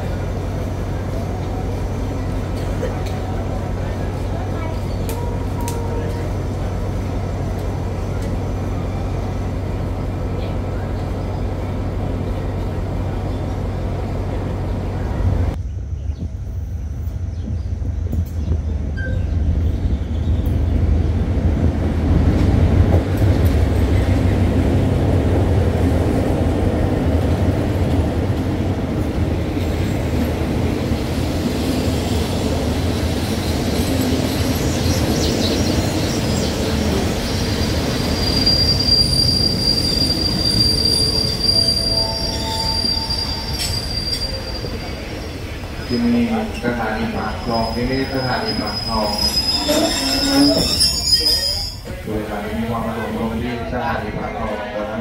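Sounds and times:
train engine rumble: 0.0 - 55.0
high wheel squeal: 34.6 - 52.0.

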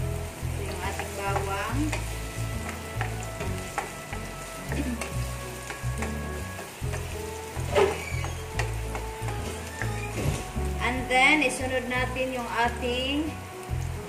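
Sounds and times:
background music with bass: 0.0 - 14.0
garlic sizzling in oil: 0.0 - 14.0
spatula scraping frying pan: 0.8 - 10.7
spatula clicking on pan: 0.9 - 6.2, 8.2 - 9.9.

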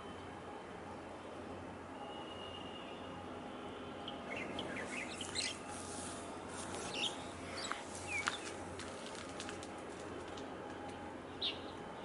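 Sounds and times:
small birds chirping: 4.1 - 6.0, 6.6 - 8.6.

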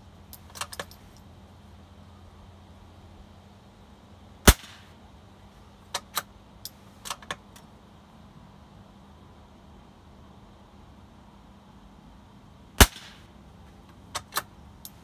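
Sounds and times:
rifle shot: 4.4 - 4.9, 12.8 - 13.3.

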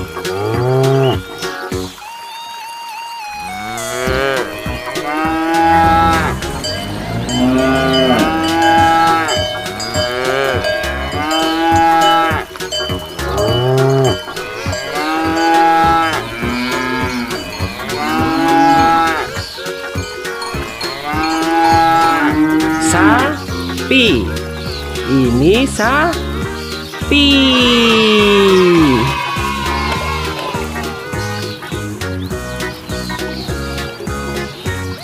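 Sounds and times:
cows mooing: 0.2 - 1.3, 3.4 - 25.4
bell ringing: 6.1 - 22.3.

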